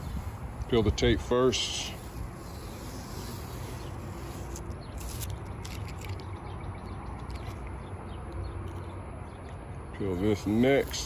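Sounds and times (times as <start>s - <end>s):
masking tape peeling: 2.0s - 6.2s.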